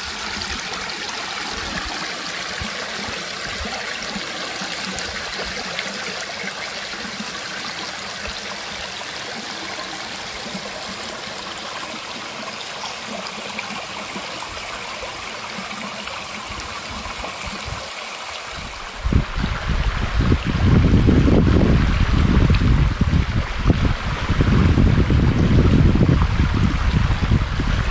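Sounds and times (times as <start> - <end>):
flowing water: 0.0 - 27.9
low rumbling on microphone: 18.6 - 27.9.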